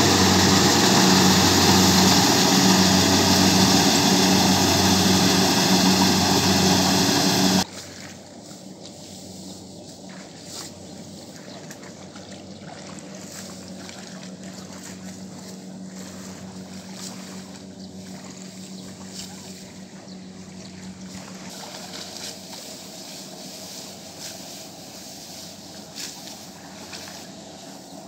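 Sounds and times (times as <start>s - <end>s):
engine hum: 0.0s - 7.7s, 8.8s - 28.0s
rice stalks cut with sickle: 21.5s - 28.0s.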